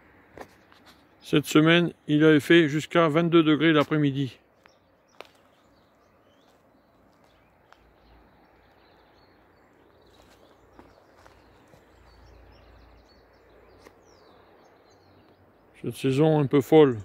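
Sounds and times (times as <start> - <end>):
distant bird chirps: 0.2 - 17.0.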